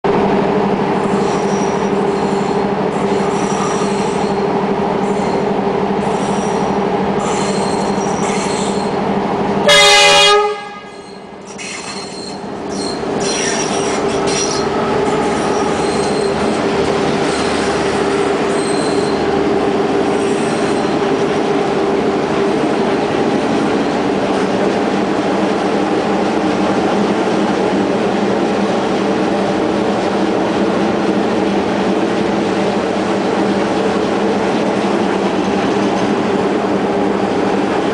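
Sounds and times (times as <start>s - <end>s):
diesel locomotive engine: 0.0s - 37.9s
passenger coaches rolling past: 0.1s - 37.9s
train horn blast: 9.6s - 11.0s.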